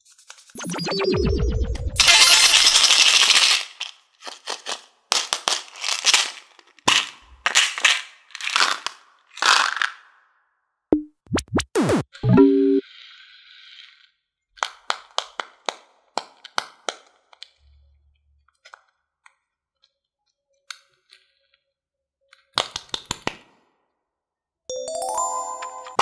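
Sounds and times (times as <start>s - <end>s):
synthetic falling pitch sweeps: 0.6s - 2.2s.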